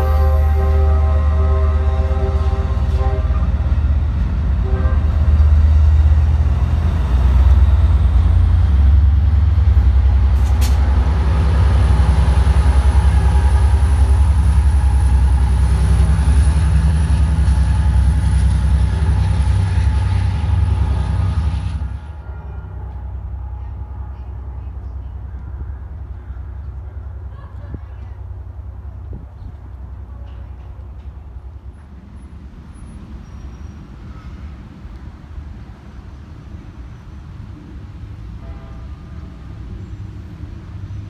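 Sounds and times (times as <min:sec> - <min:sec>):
train horn: 0:00.0 - 0:05.7, 0:17.6 - 0:24.6, 0:38.4 - 0:39.4
diesel train passing: 0:00.0 - 0:41.0.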